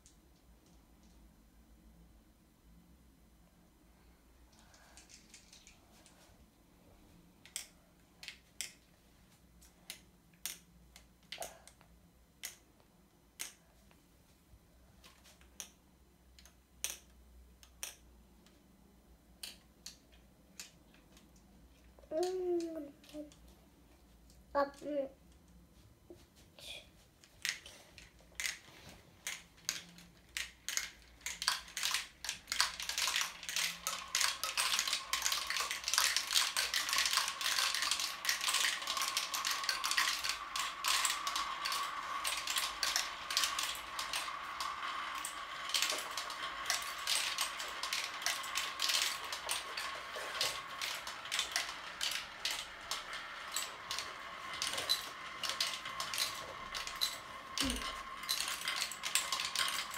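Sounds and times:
marbles clattering down a plastic run: 0:28.4 - 0:59.9.

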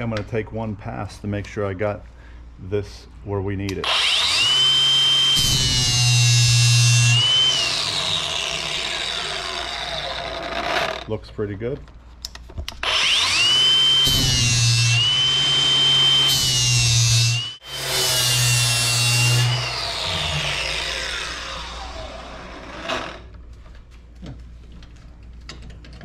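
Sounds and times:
angle grinder grinding metal: 0:03.8 - 0:11.1, 0:12.8 - 0:23.3
grinder winding down: 0:03.8 - 0:11.1, 0:12.8 - 0:23.3.

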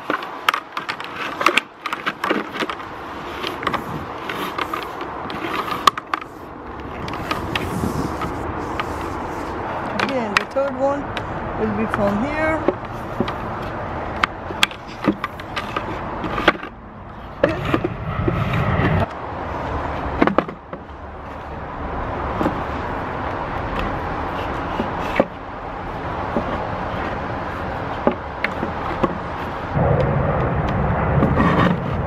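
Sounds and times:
plastic tubing scraping wood: 0:00.0 - 0:10.6, 0:11.8 - 0:19.1, 0:22.3 - 0:29.7
low background rumble: 0:29.7 - 0:32.0.

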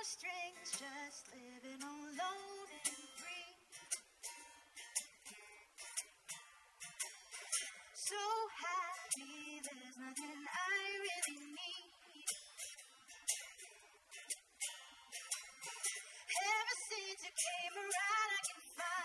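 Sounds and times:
woman singing into microphone: 0:00.0 - 0:03.6, 0:08.0 - 0:12.5, 0:16.3 - 0:19.0.

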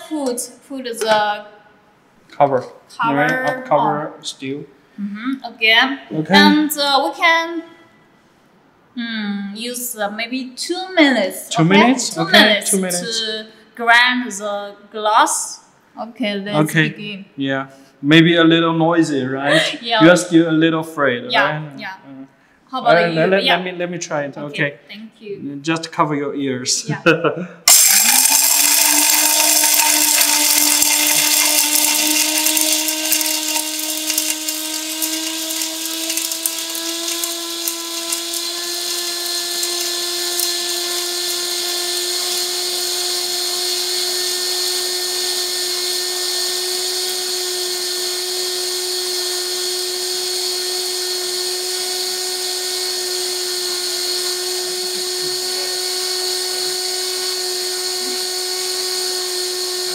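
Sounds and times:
electric grinder motor whine: 0:11.6 - 0:13.2, 0:27.7 - 0:59.9.

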